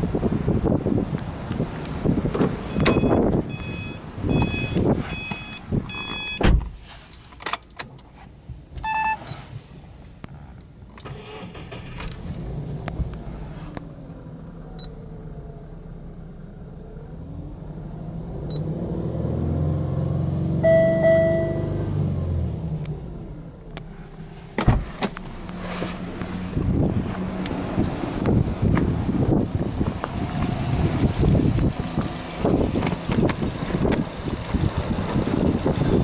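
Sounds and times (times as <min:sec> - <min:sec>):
car engine starting and running: 0:00.0 - 0:36.0
car warning chime beeping: 0:02.7 - 0:06.4, 0:08.8 - 0:09.4, 0:20.6 - 0:21.8
car door thudding shut: 0:06.0 - 0:06.8, 0:24.6 - 0:25.2.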